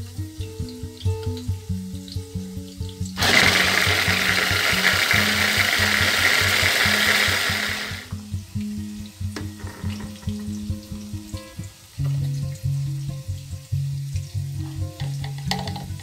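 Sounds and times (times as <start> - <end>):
electric food chopper running: 3.2 - 8.1.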